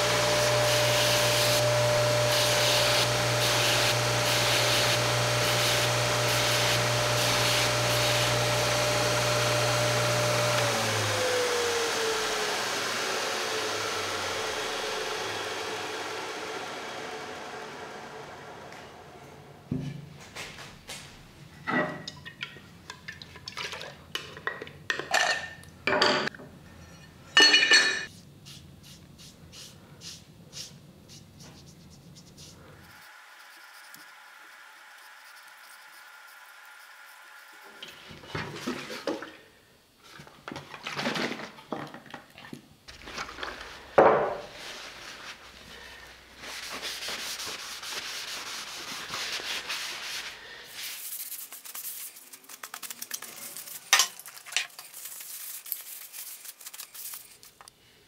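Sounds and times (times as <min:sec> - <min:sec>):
foam brush rubbing: 0:28.1 - 0:37.8, 0:43.6 - 0:57.6.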